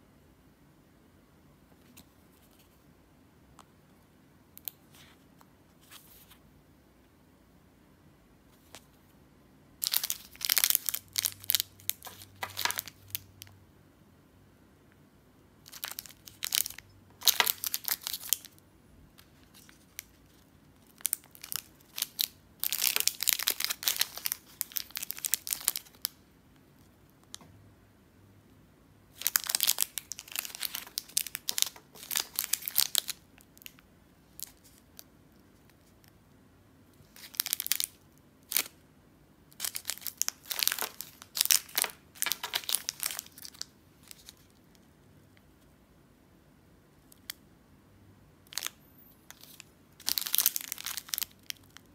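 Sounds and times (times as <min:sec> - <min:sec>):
plastic wrappers crinkling: 0:09.8 - 0:13.5, 0:15.7 - 0:18.6, 0:19.2 - 0:26.2, 0:29.2 - 0:35.1, 0:37.0 - 0:38.8, 0:39.5 - 0:44.6, 0:48.5 - 0:51.9.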